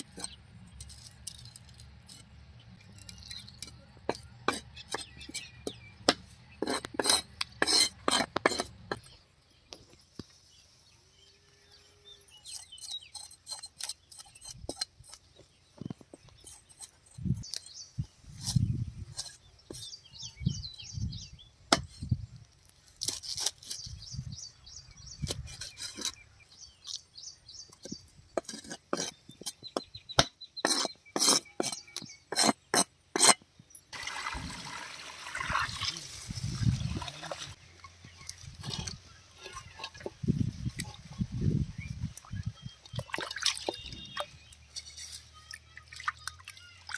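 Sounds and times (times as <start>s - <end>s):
knife scraping fish scales: 6.6s - 9.1s, 12.3s - 15.3s, 18.4s - 19.9s, 22.9s - 24.0s, 25.2s - 26.2s, 28.4s - 29.6s, 30.6s - 33.4s
water pouring into a tub: 34.0s - 37.6s.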